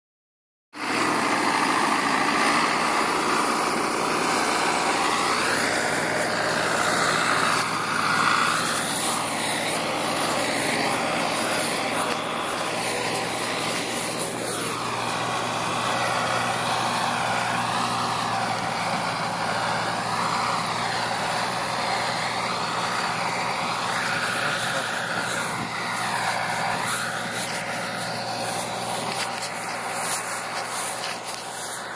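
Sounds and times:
continuous rushing noise: 0.8s - 31.9s
tractor diesel engine running: 0.8s - 31.9s.

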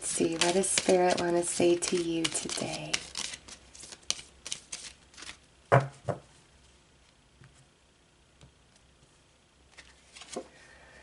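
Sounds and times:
card handling: 0.1s - 5.4s
cards clicking: 0.2s - 5.4s.

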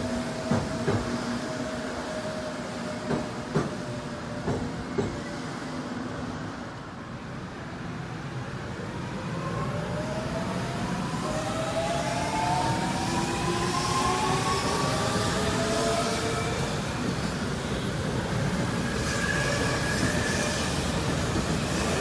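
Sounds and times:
train wheels knocking over rail joints: 0.5s - 1.2s, 4.4s - 5.2s.

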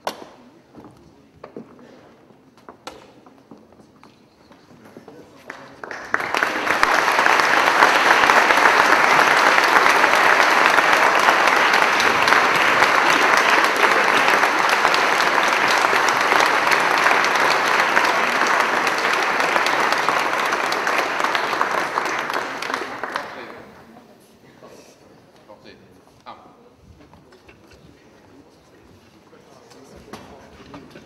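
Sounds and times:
audience clapping: 5.4s - 23.9s.

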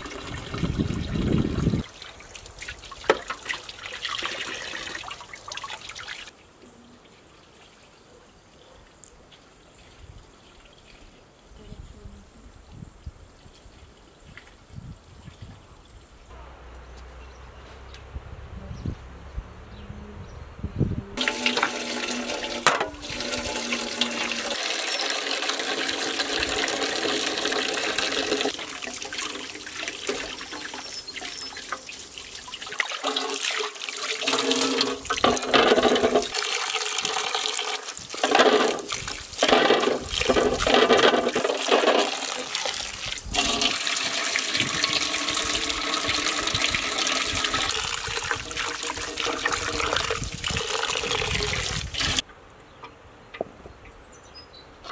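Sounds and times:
tap water gushing into bowl: 0.0s - 6.3s, 21.2s - 52.2s.

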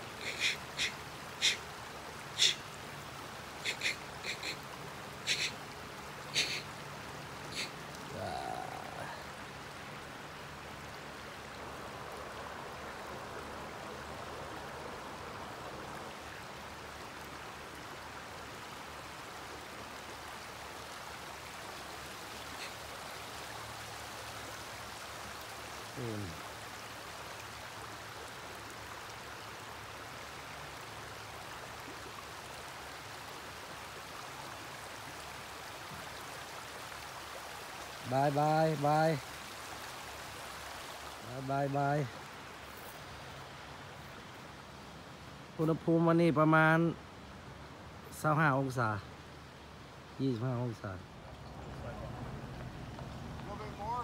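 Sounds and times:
river water flowing: 0.0s - 54.0s
falling voice-like sound: 8.1s - 9.3s.

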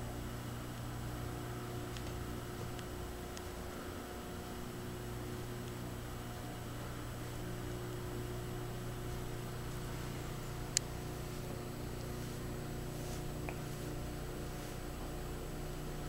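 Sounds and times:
electrical hum and hiss: 0.0s - 16.0s.

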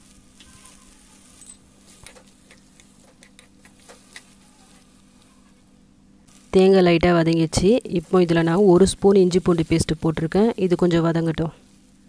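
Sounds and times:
spatula clicking in a pan: 2.0s - 4.3s.

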